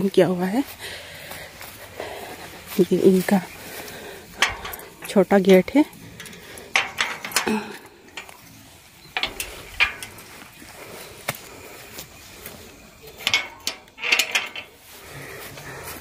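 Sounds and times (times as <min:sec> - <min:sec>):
metal gate latch clanking: 0:04.3 - 0:08.5, 0:09.1 - 0:10.3, 0:13.1 - 0:14.8.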